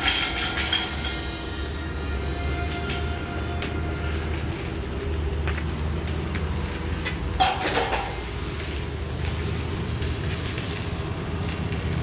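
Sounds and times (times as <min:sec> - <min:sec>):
welding equipment droning: 0:00.0 - 0:12.0.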